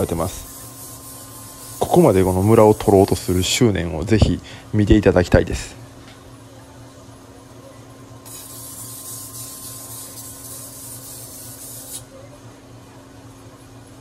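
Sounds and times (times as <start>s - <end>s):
sharpening machine hum: 0.0s - 3.9s, 8.2s - 12.2s
knife grinding on sharpening stone: 8.2s - 12.1s.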